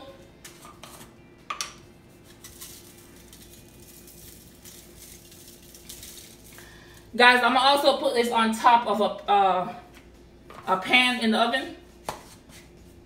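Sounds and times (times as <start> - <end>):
low steady hum: 0.0 - 13.0
seasoning shaker rattling: 2.1 - 7.1.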